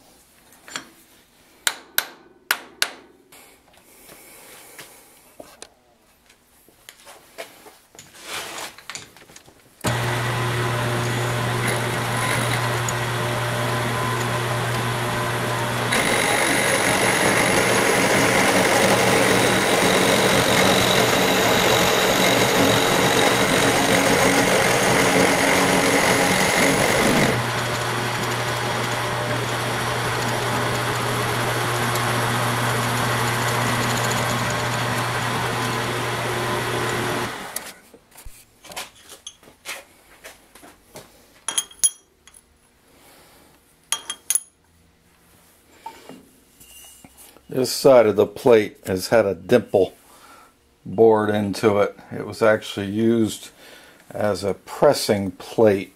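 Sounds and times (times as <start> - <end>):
face mill cutting aluminum: 9.8 - 37.7
milling machine spindle humming: 9.8 - 37.7.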